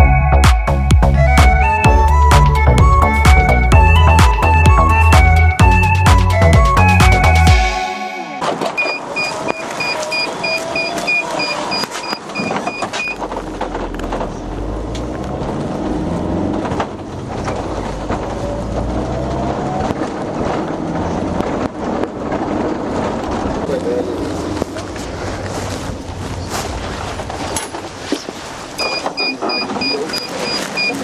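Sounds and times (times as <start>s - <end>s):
low rumble of vehicles: 8.2s - 31.0s
high electronic beeps: 8.7s - 13.2s, 28.8s - 31.0s.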